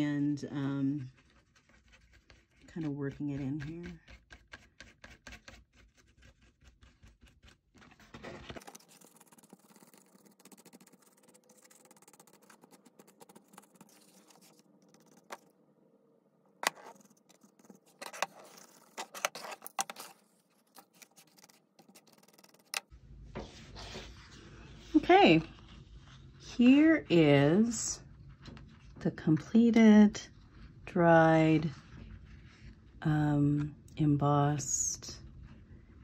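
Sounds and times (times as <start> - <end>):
paintbrush scratching paper: 0.2 - 15.5, 16.6 - 26.9.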